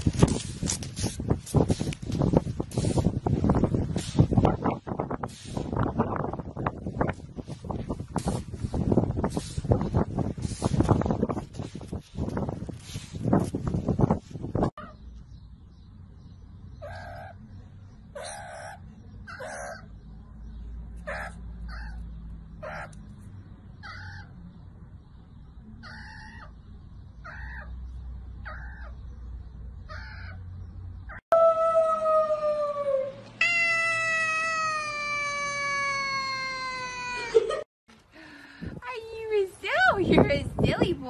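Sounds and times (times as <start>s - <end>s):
kitten meowing: 33.4s - 36.8s.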